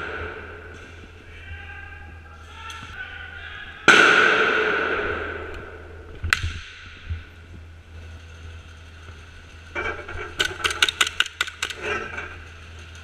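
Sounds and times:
loud echoing bang: 0:00.0 - 0:01.0, 0:03.8 - 0:07.1
sharp crack: 0:03.8 - 0:07.0.

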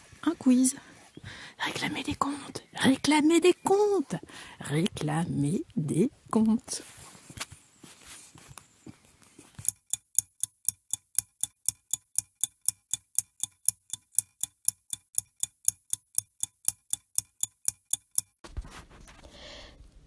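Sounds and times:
clock ticking: 0:09.6 - 0:18.3.

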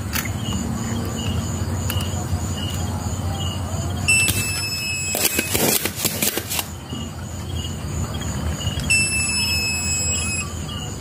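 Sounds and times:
thin high-pitched whine: 0:08.6 - 0:11.0.

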